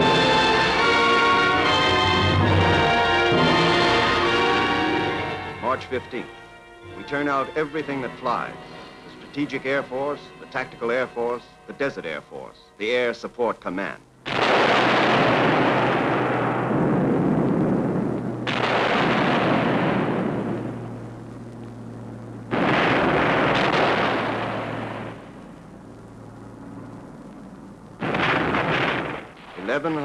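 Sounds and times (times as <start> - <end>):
bomb explosions: 14.2 - 30.0.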